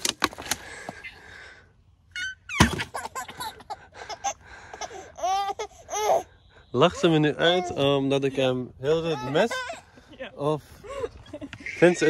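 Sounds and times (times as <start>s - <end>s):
plastic bottle landing thunk: 2.6s - 3.0s.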